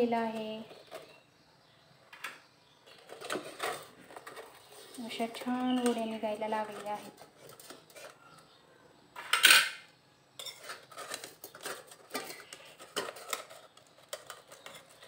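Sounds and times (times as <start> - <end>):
spoon scraping a steel plate: 10.4 - 15.0.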